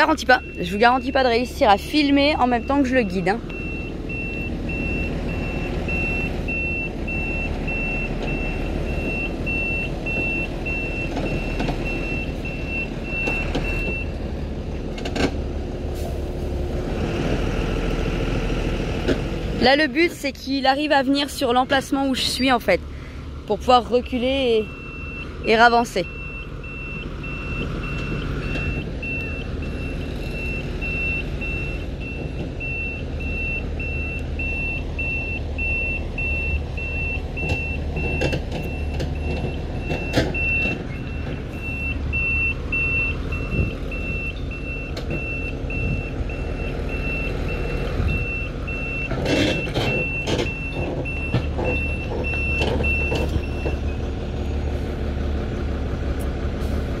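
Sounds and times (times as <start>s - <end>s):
reversing alarm beeps: 0.0s - 14.1s, 24.7s - 53.9s
diesel truck engine running: 0.0s - 57.0s.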